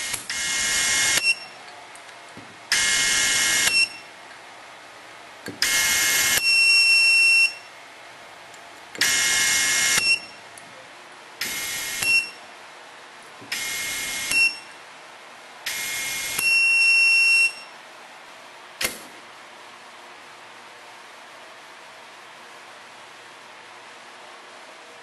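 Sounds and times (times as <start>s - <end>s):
high beep: 1.2s - 1.6s, 3.6s - 4.1s, 12.0s - 12.4s.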